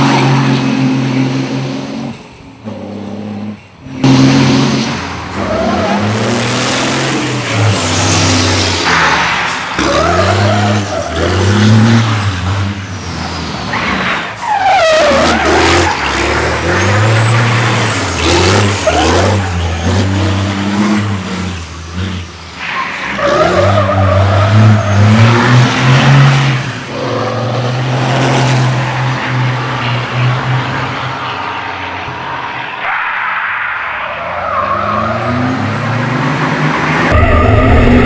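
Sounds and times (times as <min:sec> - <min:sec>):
truck engine revving: 0:00.0 - 0:31.2, 0:34.6 - 0:38.0
tyres squealing on asphalt: 0:05.2 - 0:20.8, 0:22.0 - 0:29.9, 0:31.0 - 0:38.0.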